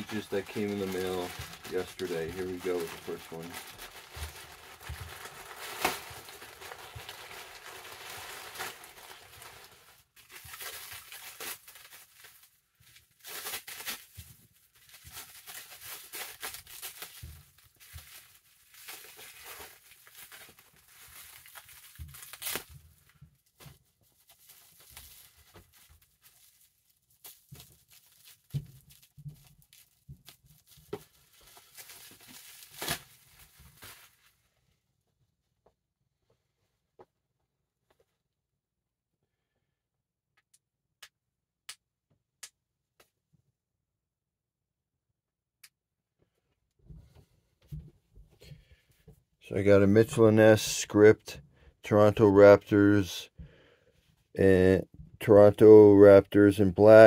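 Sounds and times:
plastic mailer tearing: 0.0s - 12.5s, 13.2s - 14.2s, 14.8s - 22.8s, 24.2s - 34.1s
plastic bag crinkling: 0.0s - 23.1s, 24.1s - 34.3s.

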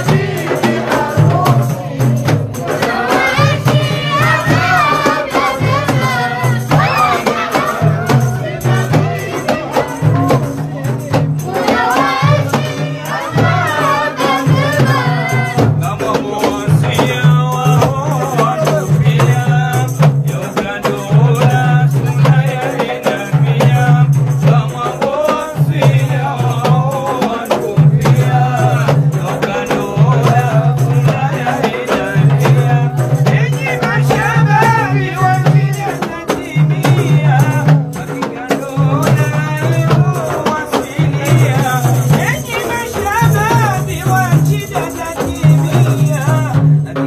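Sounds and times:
frame drums: 0.0s - 47.0s
group singing through microphone: 0.0s - 47.0s
jangling rattle percussion: 0.0s - 47.0s.

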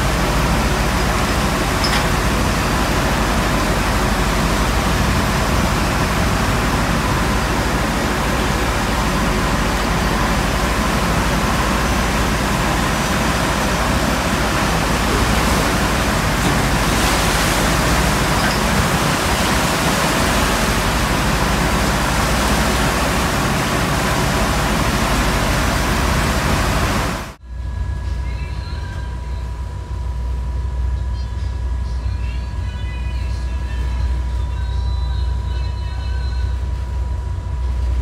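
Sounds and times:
seawater rushing and splashing: 0.0s - 27.4s.

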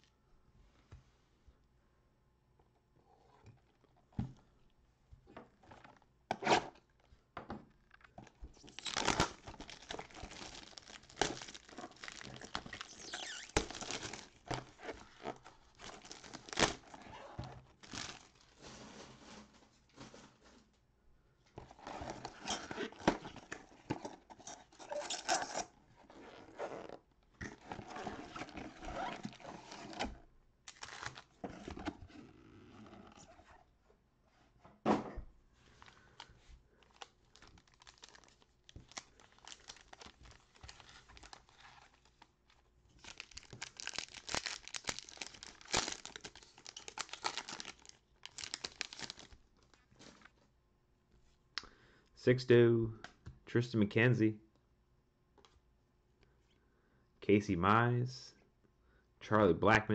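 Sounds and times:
card pack wrappers crinkling and tearing: 8.2s - 17.2s, 17.8s - 18.6s, 30.7s - 31.4s, 35.8s - 50.3s.

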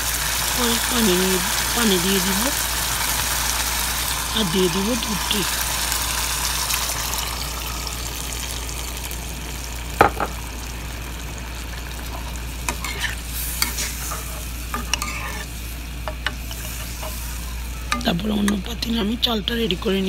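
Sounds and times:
chicken sizzling in pan: 0.0s - 20.0s
stirring clinks and scrapes: 12.7s - 17.2s.

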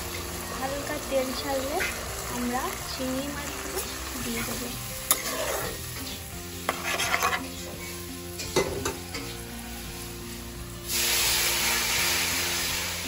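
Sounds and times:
sizzling hiss of frying: 0.0s - 13.0s
spatula scraping a pan: 3.6s - 9.4s.

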